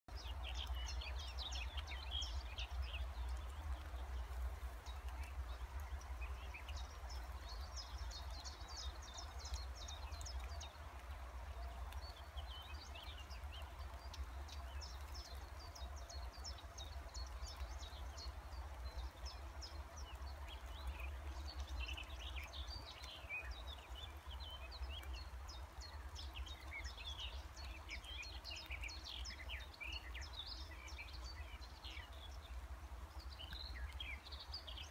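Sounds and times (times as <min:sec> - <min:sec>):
songbirds chirping and singing: 0:00.1 - 0:34.9.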